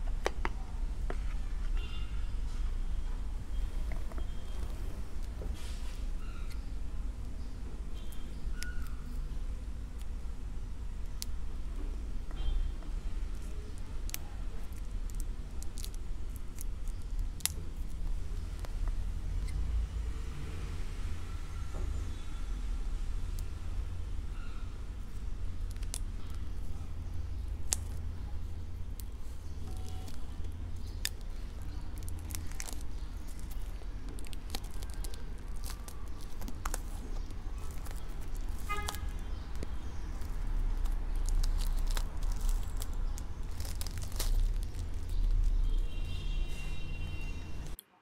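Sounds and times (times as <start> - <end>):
steady low hum: 0.0 - 47.8
cellophane wrap crinkling: 13.3 - 18.7, 25.0 - 47.8
scissors on plastic wrap: 29.6 - 45.8.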